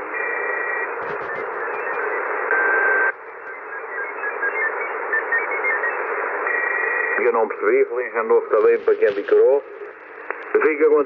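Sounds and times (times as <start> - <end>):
radio receiver hiss: 0.0 - 11.0
steady radio whistle: 0.0 - 11.0
short radio whistles: 0.2 - 7.2
clicks: 10.2 - 10.6.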